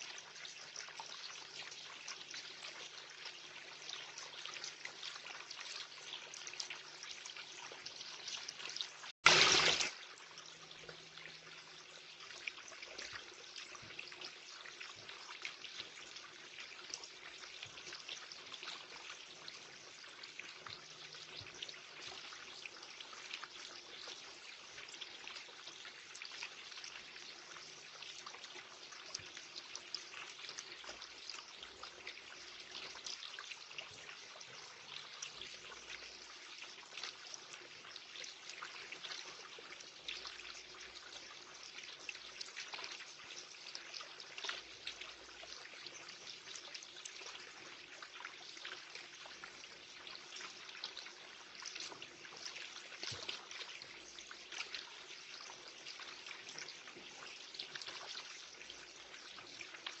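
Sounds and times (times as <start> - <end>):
water trickling into pond: 0.0 - 60.0
bird splashing in water: 9.2 - 9.9.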